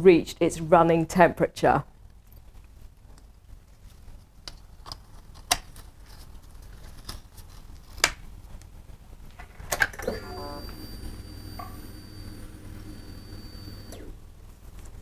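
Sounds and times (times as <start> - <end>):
steady high whine: 10.0 - 14.2
low hum: 10.1 - 14.2.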